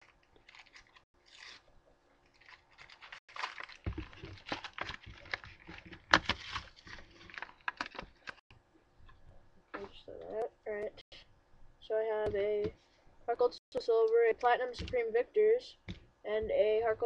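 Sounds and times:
plastic wrapping crinkling: 0.0 - 8.4.

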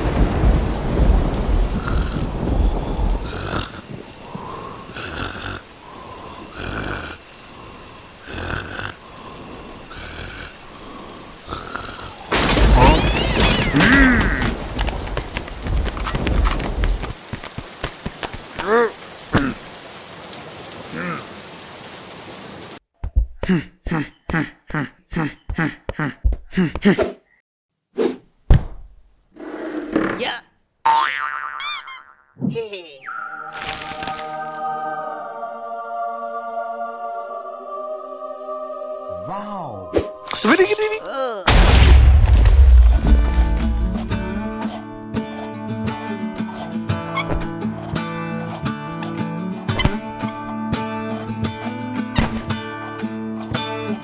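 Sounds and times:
cartoon snoring: 1.8 - 2.4, 3.2 - 3.9, 4.9 - 7.2, 8.2 - 9.3, 9.9 - 12.3
cartoon voice babbling: 12.8 - 13.9
faint whistling tone: 33.0 - 33.6.

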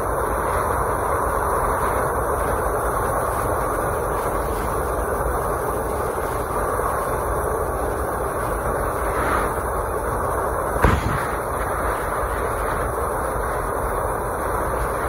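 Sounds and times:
freight train wheels rumbling: 0.0 - 15.0
sharp bang: 10.8 - 11.8.

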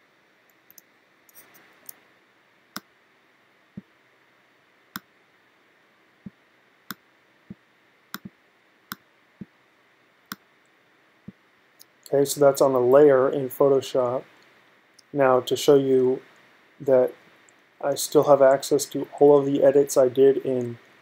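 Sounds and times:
faint steady hiss: 0.0 - 21.0
soft rustle: 0.6 - 2.2.

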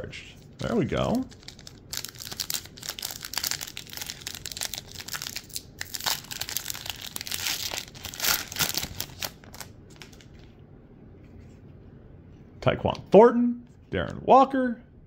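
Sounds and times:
foil wrapper crinkling and tearing: 0.6 - 10.4.

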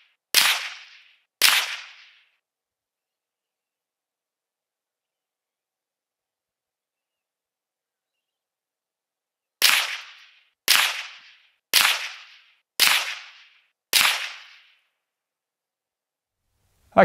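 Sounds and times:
rifle shots: 0.3 - 2.3, 9.6 - 14.7.

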